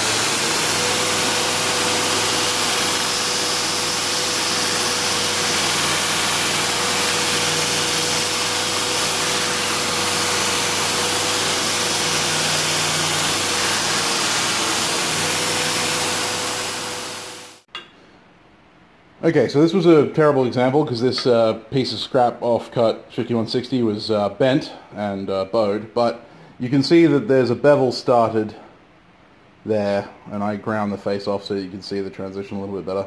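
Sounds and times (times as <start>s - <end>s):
motor hum: 0.0s - 17.6s.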